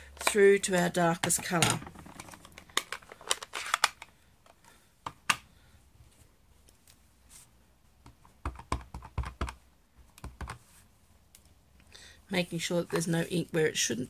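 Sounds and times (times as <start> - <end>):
plastic clicks: 0.2 - 5.5.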